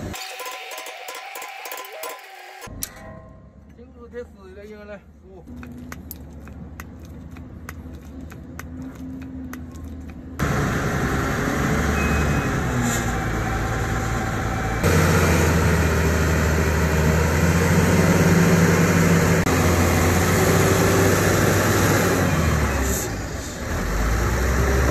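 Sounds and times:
heavy diesel engine running: 10.2 - 24.9.

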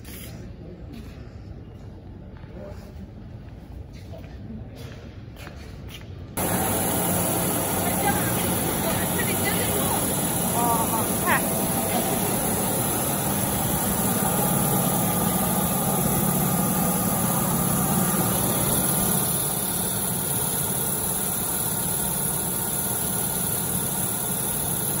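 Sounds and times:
machine hum with high hiss: 6.4 - 25.0.

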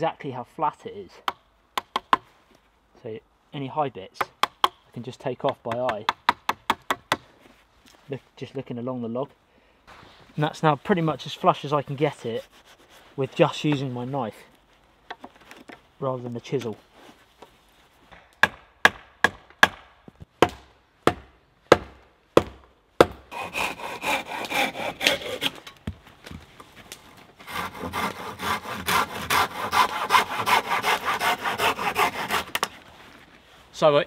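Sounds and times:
sharp wooden knocks: 1.3 - 2.3, 4.2 - 4.8, 5.4 - 7.2, 18.1 - 23.2
hand saw cutting wood: 23.0 - 25.8, 27.4 - 32.8.

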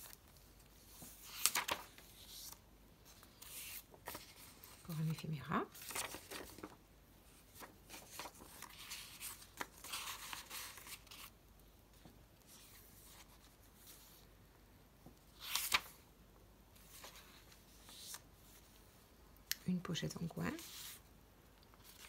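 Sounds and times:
paper rustling and sliding: 0.0 - 11.3, 15.4 - 16.0, 16.8 - 18.7, 21.8 - 22.0
page turning swish: 1.0 - 2.6.

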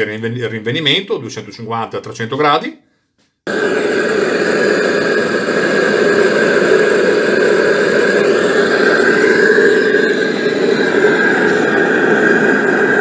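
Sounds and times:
gas torch burner roaring: 3.5 - 13.0.

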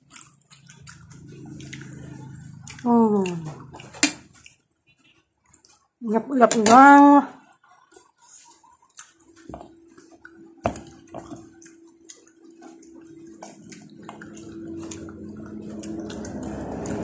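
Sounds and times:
low vehicle rumble: 13.8 - 17.0.

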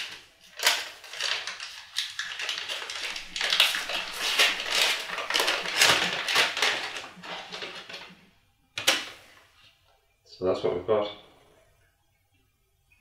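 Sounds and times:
paper tearing and crumpling: 0.0 - 8.2.

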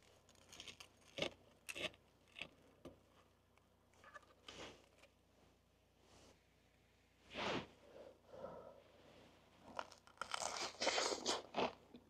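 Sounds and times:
sandwich crust crunching: 0.0 - 3.1, 9.7 - 11.9.

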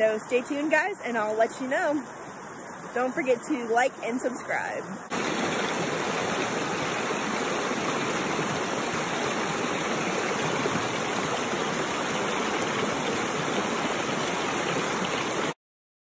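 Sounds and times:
creek rushing over rocks: 0.0 - 15.6.

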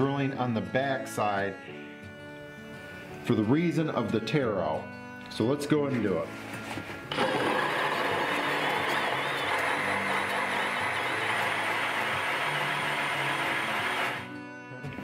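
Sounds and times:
drill motor: 7.1 - 14.3.

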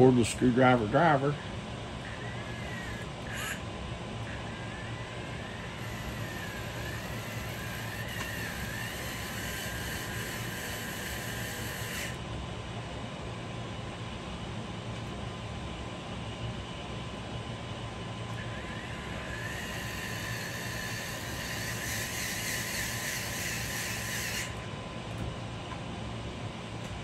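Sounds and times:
air conditioner hum: 0.0 - 27.0
cordless screwdriver motor whine: 2.0 - 12.2, 18.3 - 24.7.

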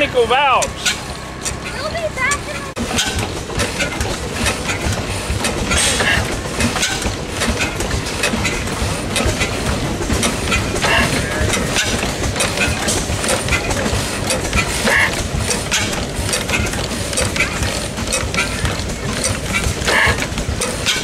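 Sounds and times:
engine valves clicking and knocking: 0.0 - 21.0.

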